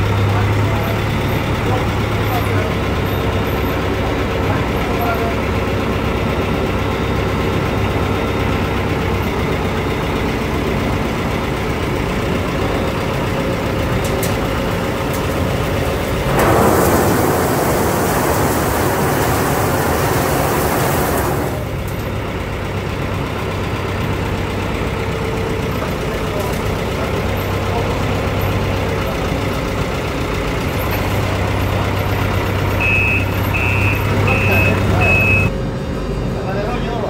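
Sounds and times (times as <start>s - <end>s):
forklift engine idling: 0.0s - 37.0s
olives pouring into metal hopper: 15.2s - 21.9s.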